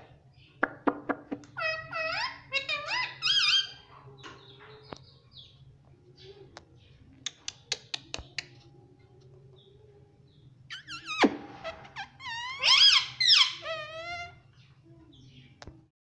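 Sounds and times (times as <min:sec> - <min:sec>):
soft bird chatter: 0:00.0 - 0:15.9
parakeet squawking: 0:01.5 - 0:03.9, 0:10.7 - 0:14.4.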